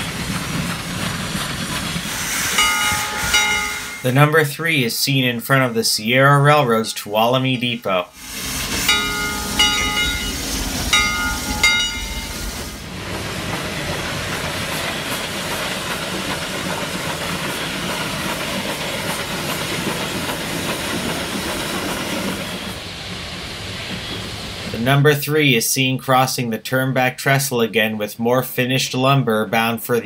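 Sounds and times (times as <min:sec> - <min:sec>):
steam locomotive hissing and rumbling: 0:00.0 - 0:30.0
steam locomotive whistle: 0:02.2 - 0:04.1.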